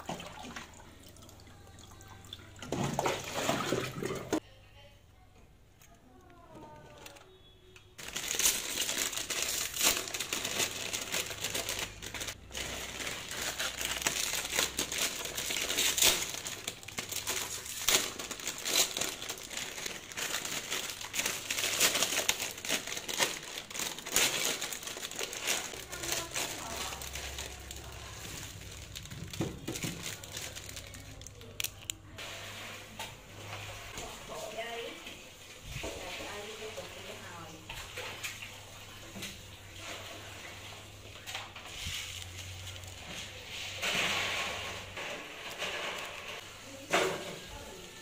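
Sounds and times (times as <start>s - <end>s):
plastic packets crinkling: 8.0s - 32.1s.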